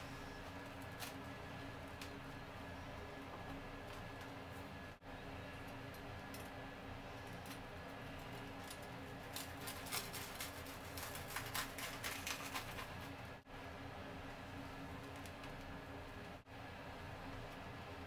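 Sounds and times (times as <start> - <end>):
low steady hum: 0.0 - 18.0
toast crust crunching: 8.6 - 13.1.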